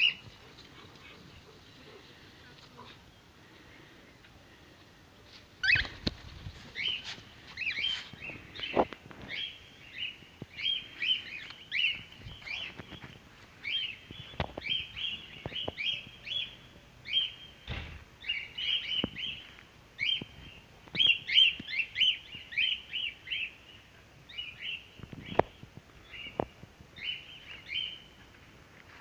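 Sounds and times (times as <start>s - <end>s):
cockatiels chirping: 5.6s - 6.0s.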